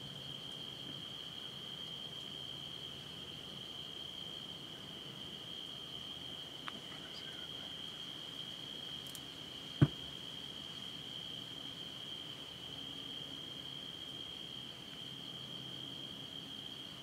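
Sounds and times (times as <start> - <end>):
night insects droning: 0.0 - 17.0.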